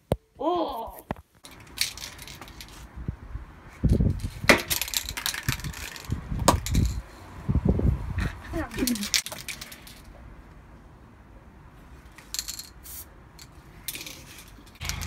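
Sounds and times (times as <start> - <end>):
low rumbling on microphone: 6.1 - 8.6
spray can ball rattling: 12.2 - 15.0.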